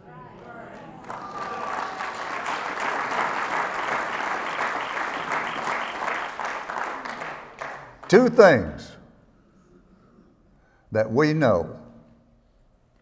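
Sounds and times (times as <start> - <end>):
audience applauding: 0.4 - 8.7.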